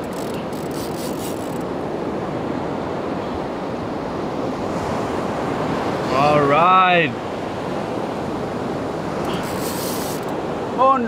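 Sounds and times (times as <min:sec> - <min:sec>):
faint high ticks: 0:00.0 - 0:01.7, 0:09.2 - 0:10.4
sea washing around boat: 0:00.0 - 0:11.0.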